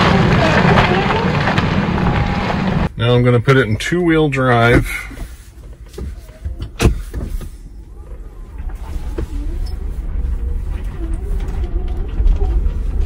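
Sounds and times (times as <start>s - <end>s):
low rumble of vehicle rolling: 0.0s - 13.0s.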